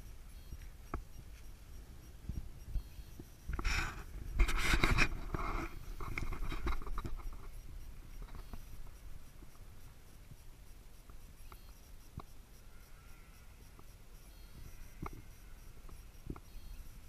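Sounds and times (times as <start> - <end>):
faint scattered clicks: 0.0 - 17.0
scratchy rustling and crackling: 3.5 - 8.6.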